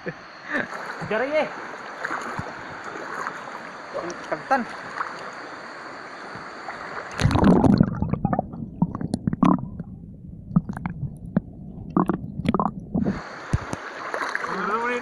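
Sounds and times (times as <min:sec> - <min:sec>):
flowing water hiss: 0:00.0 - 0:09.0, 0:10.6 - 0:15.0
sharp underwater clicks and knocks: 0:02.2 - 0:02.6, 0:07.1 - 0:13.8
muffled underwater rumbling: 0:06.3 - 0:14.6
loud splash: 0:06.7 - 0:08.6, 0:12.0 - 0:15.0.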